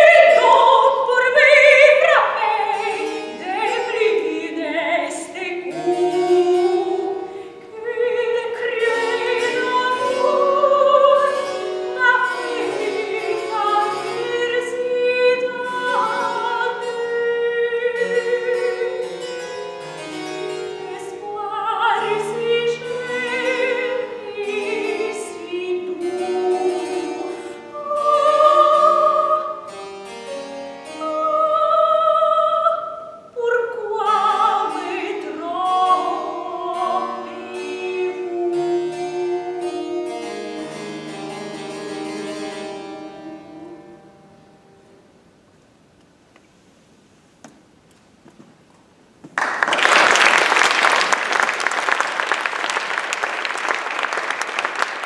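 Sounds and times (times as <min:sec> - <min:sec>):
soprano singing opera: 0:00.0 - 0:19.4, 0:20.8 - 0:29.7, 0:30.9 - 0:44.3
harpsichord accompaniment: 0:08.4 - 0:31.4
audience applause: 0:49.4 - 0:55.0.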